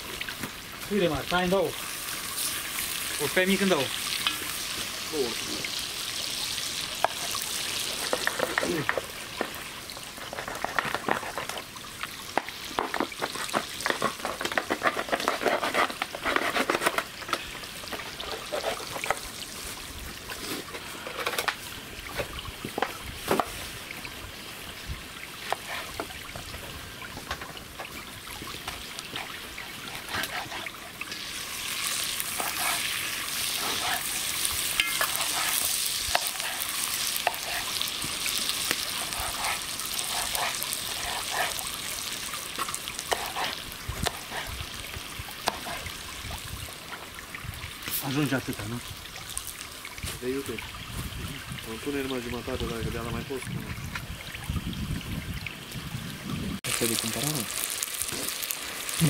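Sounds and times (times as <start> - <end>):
food sizzling over campfire: 0.0 - 59.0
small crackles: 7.0 - 23.6, 25.4 - 44.5, 56.7 - 59.0.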